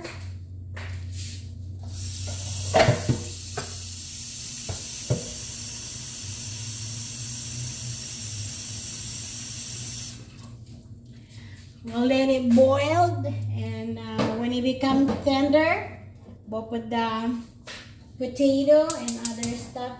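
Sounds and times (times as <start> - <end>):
tap water running into pot: 1.8 - 10.7.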